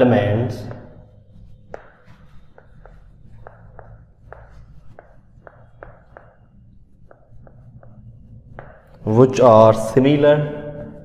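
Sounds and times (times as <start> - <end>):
low steady hum: 0.0 - 11.0
writing taps and scratches on board: 0.7 - 9.1.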